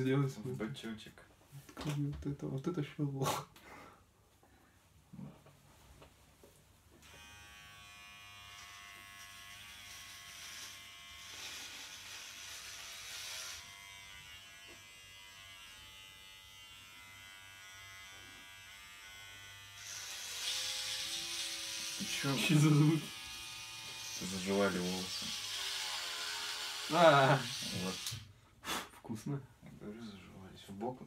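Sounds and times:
electric hair clippers buzzing: 7.0s - 28.3s.

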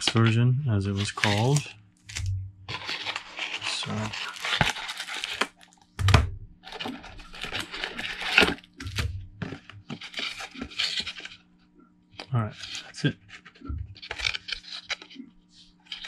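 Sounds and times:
cardboard rustling: 0.9s - 11.4s, 12.2s - 15.2s
plastic shrink-wrap crinkling: 1.0s - 5.8s, 6.6s - 11.4s
sharp thump: 6.0s - 6.5s.

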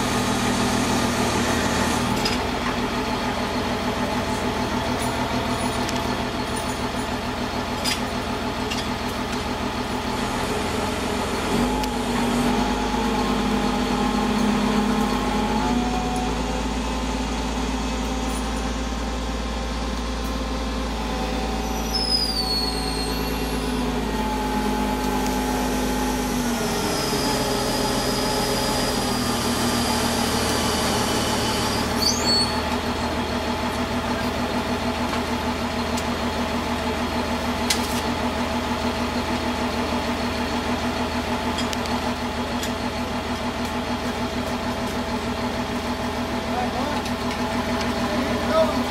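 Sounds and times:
deeper engine running: 0.0s - 48.9s
truck engines idling: 0.0s - 48.9s
short high squeals: 21.3s - 24.0s, 26.6s - 32.8s.

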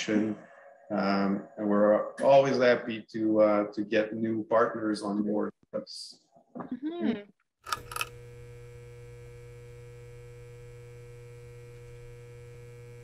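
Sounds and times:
neon sign electric hum: 7.7s - 13.0s.

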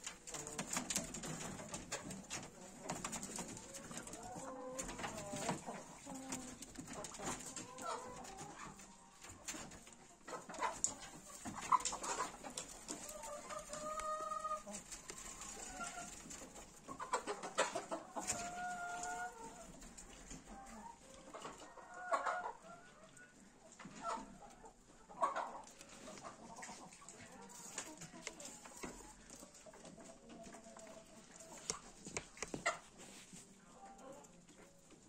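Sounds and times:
chickens clucking: 0.0s - 35.0s
sharp clicks and knocks: 31.6s - 32.8s.

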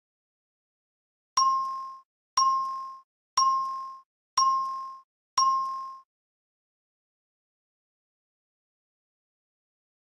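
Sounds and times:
bright ding chimes: 1.4s - 6.1s.

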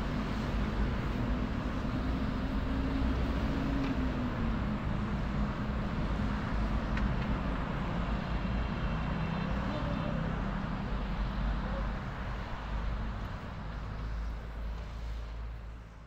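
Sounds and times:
faint engine hum: 0.0s - 16.0s
road traffic rumble: 0.0s - 16.0s.

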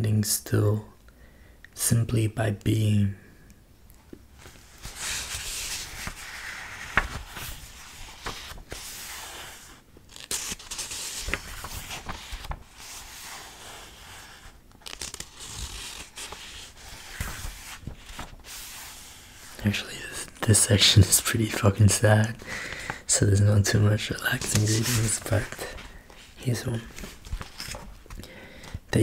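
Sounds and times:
book pages rustling and flipping: 4.4s - 21.2s, 23.7s - 28.9s.

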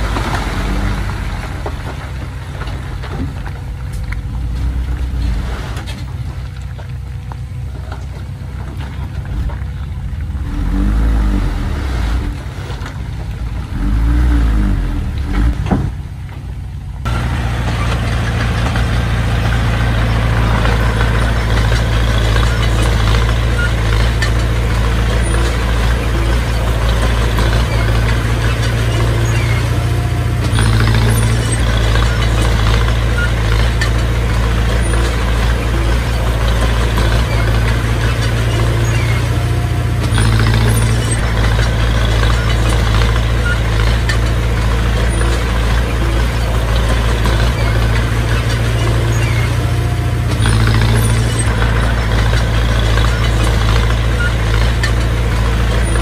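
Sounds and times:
bulldozer diesel engine rumbling: 0.0s - 56.0s.

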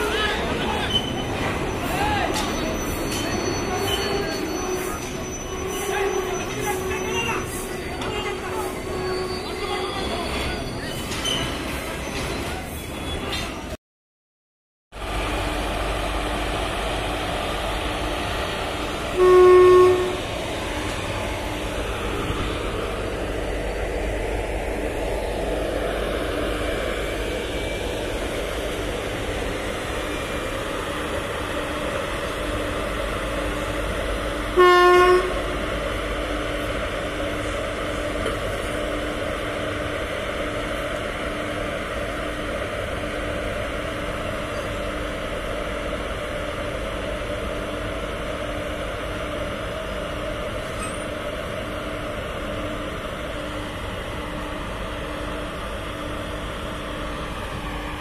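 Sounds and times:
electric train rumbling: 0.0s - 13.8s, 15.0s - 58.0s
train horn blast: 19.1s - 20.3s, 34.5s - 35.5s.

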